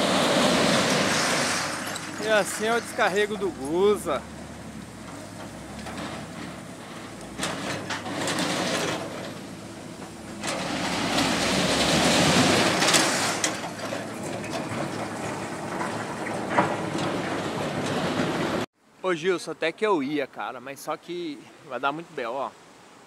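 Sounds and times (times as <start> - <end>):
metal chunks clattering in bucket: 0.4 - 4.1, 7.4 - 9.4, 10.3 - 18.5
excavator engine running: 1.7 - 18.7.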